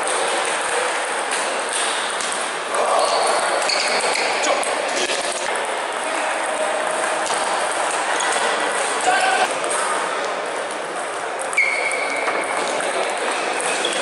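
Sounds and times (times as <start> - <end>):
echoing sports hall din: 0.0 - 14.0.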